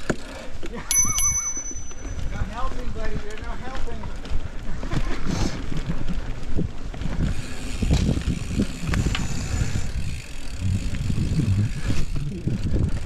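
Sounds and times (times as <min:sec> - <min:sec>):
bike rattling over bumps: 0:00.0 - 0:13.0
bike tyres on dirt: 0:01.9 - 0:13.0
wind rumble on microphone: 0:02.1 - 0:13.0.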